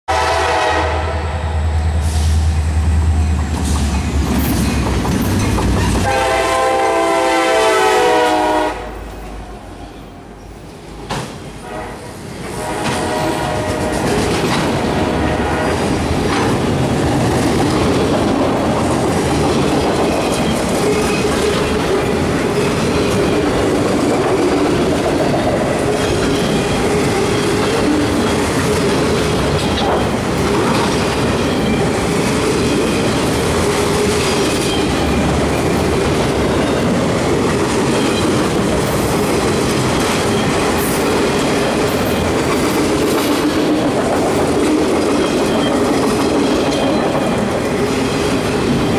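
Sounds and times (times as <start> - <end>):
train wheels rumbling on rails: 0.1 - 48.9
wheels clicking over rail joints: 3.4 - 6.1, 16.0 - 48.9.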